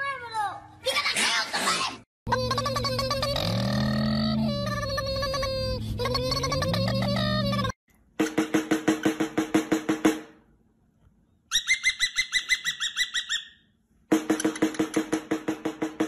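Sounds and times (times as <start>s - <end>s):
snare drum rolls: 8.2s - 10.4s, 14.1s - 16.0s.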